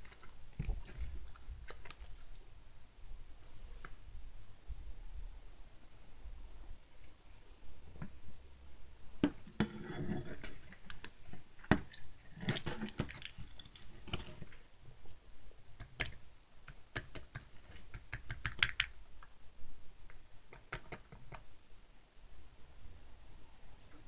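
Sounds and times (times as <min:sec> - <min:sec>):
plastic mold clicking and crackling: 0:10.4 - 0:14.6, 0:15.8 - 0:19.3.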